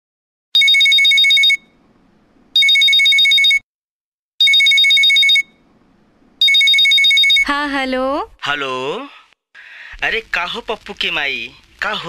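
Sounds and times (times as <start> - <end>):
mobile phone ringing trill: 0.6 - 1.8, 2.6 - 3.6, 4.4 - 5.6, 6.4 - 7.5.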